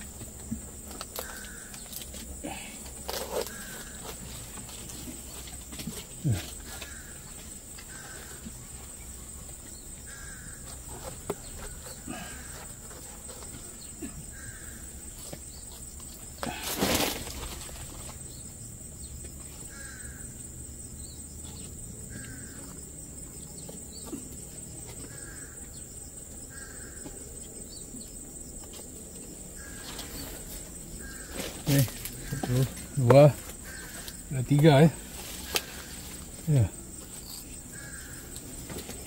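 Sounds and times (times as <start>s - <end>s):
high insect drone: 0.0s - 39.0s
loud rustle: 16.4s - 18.2s.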